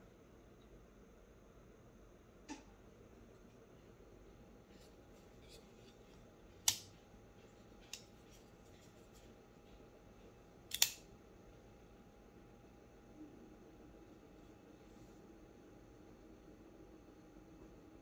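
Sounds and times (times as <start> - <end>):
knife blade clicking: 10.7 - 11.0
knife blade snapping shut: 10.7 - 11.0.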